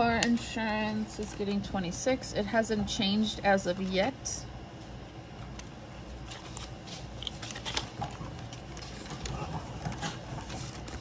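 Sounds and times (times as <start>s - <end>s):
low steady hum: 0.0s - 11.0s
banknotes rustling and crinkling: 6.1s - 11.0s.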